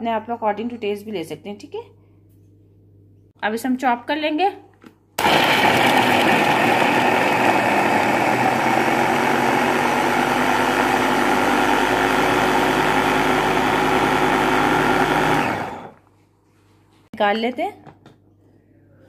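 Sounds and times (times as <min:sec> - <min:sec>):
electric chopper motor running: 0:05.2 - 0:16.0.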